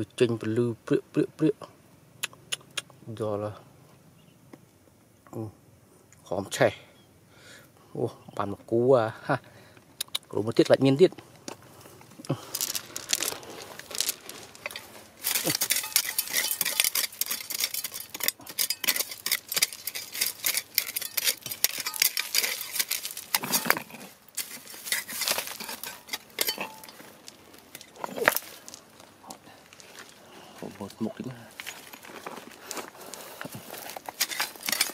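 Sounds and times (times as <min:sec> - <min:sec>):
digging tool scraping stony ground: 0:11.8 - 0:28.9, 0:31.6 - 0:34.9.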